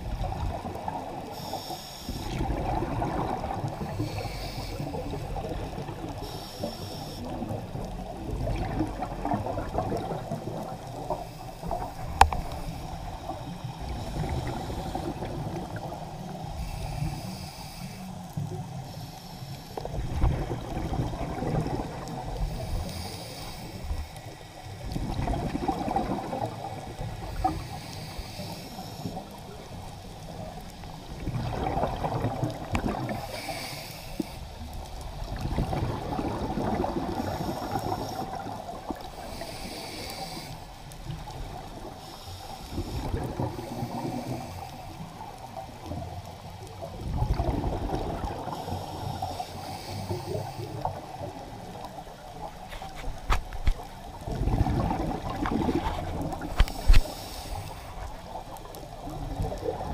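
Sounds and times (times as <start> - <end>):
exhaled bubbles gurgling underwater: 0.0 - 59.9
regulator inhalation hiss: 1.3 - 2.4, 3.8 - 7.5, 11.0 - 20.0, 22.4 - 24.8, 27.2 - 29.6, 33.1 - 34.7, 37.1 - 45.2, 48.4 - 51.2, 56.4 - 58.4.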